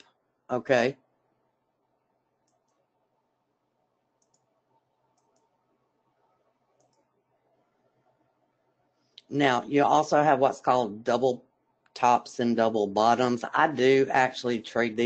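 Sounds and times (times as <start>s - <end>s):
faint computer mouse clicks: 2.4s - 2.8s, 4.2s - 4.5s, 5.1s - 5.6s, 6.8s - 7.1s.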